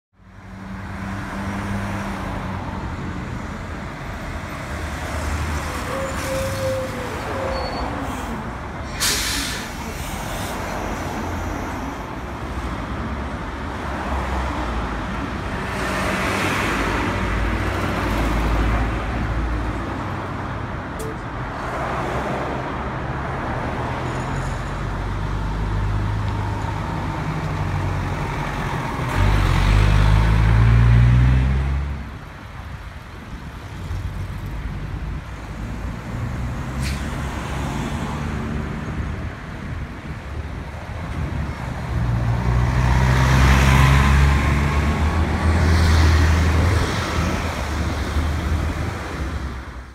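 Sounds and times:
street traffic passing: 0.1 - 49.9
air-brake hiss: 8.9 - 10.6.

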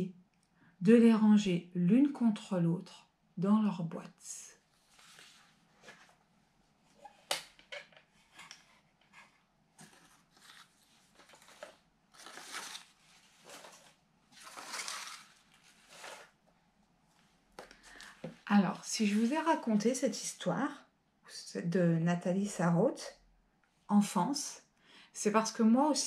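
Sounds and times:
paper rustling: 4.7 - 6.2, 7.0 - 16.4.

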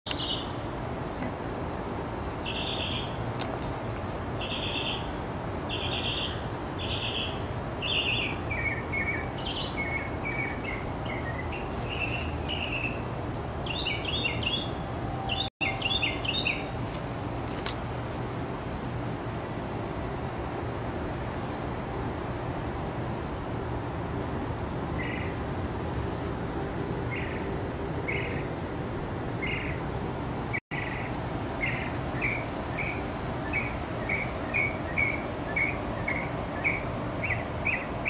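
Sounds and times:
songbird singing: 0.1 - 1.4, 2.4 - 3.5, 4.4 - 17.0, 24.7 - 25.5, 27.0 - 28.6, 29.4 - 29.9, 30.5 - 38.0.

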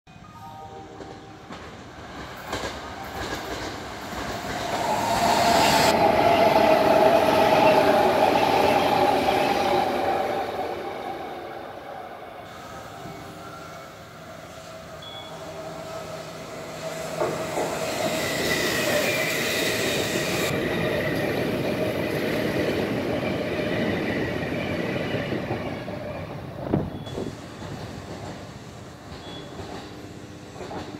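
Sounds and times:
steady high tone: 0.1 - 1.7
train wheel and rail noise: 0.2 - 30.9.

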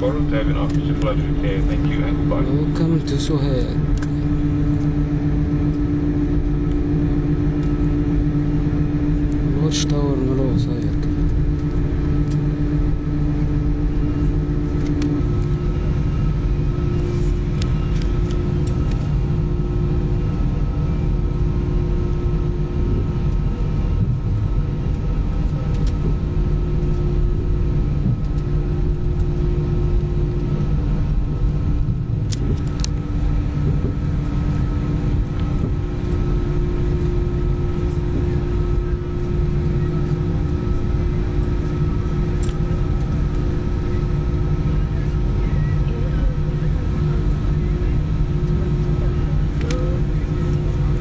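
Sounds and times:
jet engines low rumble: 0.0 - 51.0.

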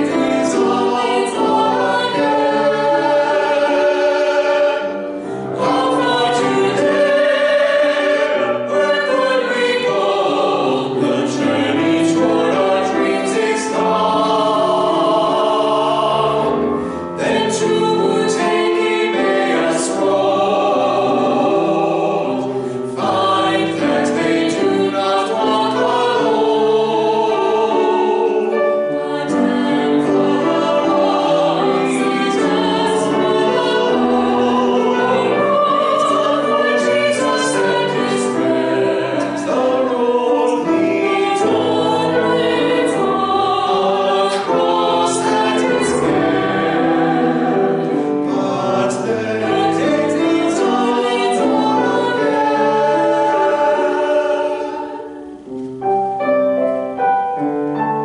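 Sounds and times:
vocal quartet singing choral piece: 0.0 - 57.4.

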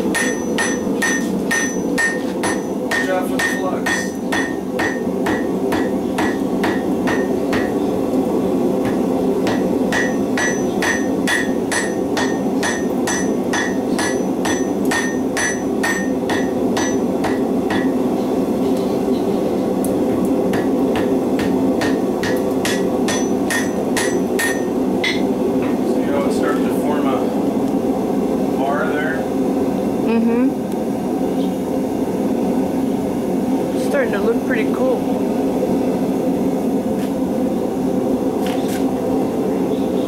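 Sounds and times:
steady low hum: 0.0 - 40.0
hammer striking metal on anvil: 0.1 - 7.8, 8.8 - 18.0, 20.5 - 25.3.

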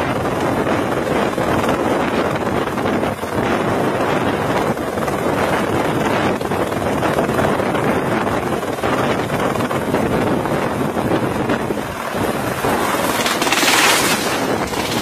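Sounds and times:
helicopter hovering: 0.0 - 15.0
rotor wash buffeting microphone: 0.0 - 15.0.

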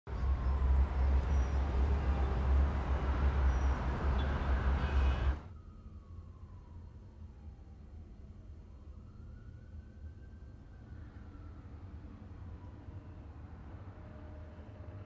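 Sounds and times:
traffic rumble: 0.1 - 9.8.

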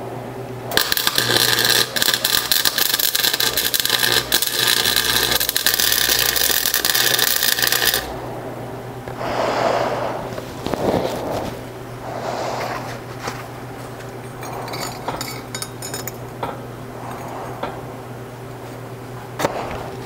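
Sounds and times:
welder arc crackling: 0.7 - 8.3.

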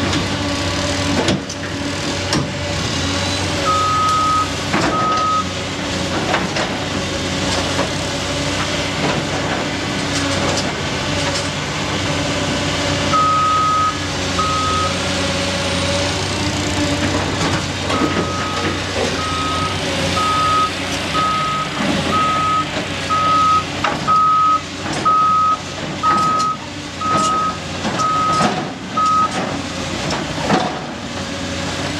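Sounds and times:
excavator diesel engine: 0.0 - 31.9
backup alarm beeping: 3.7 - 5.5, 13.2 - 15.0, 17.9 - 28.4
clanks and knocks: 26.0 - 31.0.

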